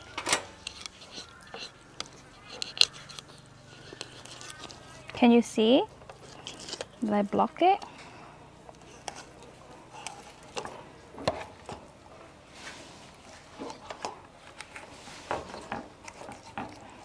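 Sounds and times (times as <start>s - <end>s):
knife scraping fish: 0.5s - 5.1s, 6.1s - 7.0s, 8.7s - 11.4s, 13.4s - 17.0s.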